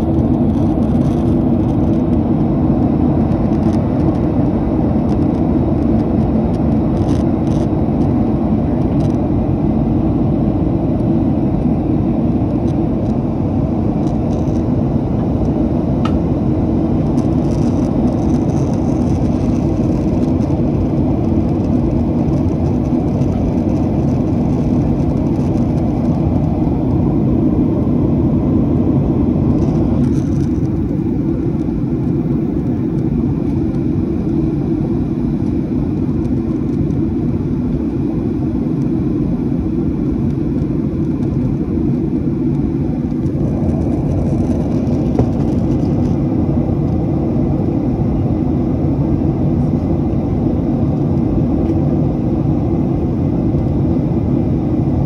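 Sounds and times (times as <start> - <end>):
jet engine cabin rumble: 0.0 - 55.0.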